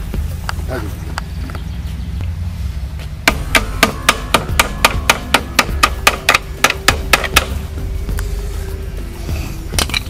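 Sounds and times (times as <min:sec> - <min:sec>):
hammer striking metal: 0:03.2 - 0:07.6.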